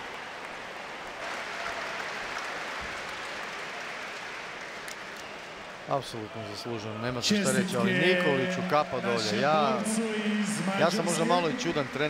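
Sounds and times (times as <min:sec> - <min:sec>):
crowd applauding: 0:00.0 - 0:12.0.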